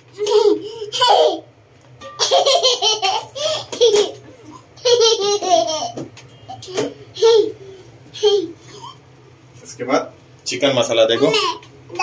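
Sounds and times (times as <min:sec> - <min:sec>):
child giggling: 0:00.2 - 0:01.5, 0:02.2 - 0:06.0, 0:08.2 - 0:09.0.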